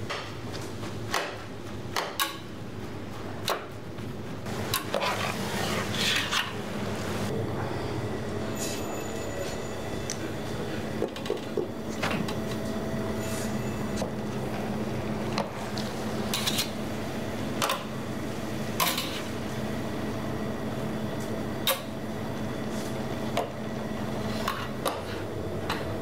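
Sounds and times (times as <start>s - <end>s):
steady hum: 0.0s - 26.0s
scraping in a pot: 4.8s - 6.6s.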